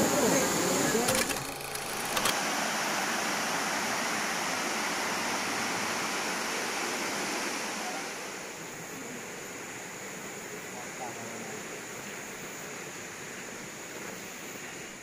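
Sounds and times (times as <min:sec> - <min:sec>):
stream flowing over rocks: 0:01.7 - 0:10.2.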